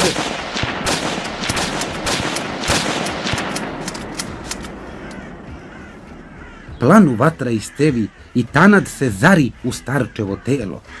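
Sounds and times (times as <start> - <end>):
rapid rifle gunfire: 0.0 - 4.4.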